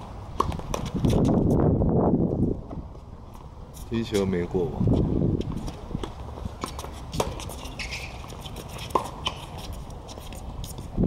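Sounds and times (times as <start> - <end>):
tennis ball struck and bouncing: 0.3 - 1.2, 6.0 - 9.7.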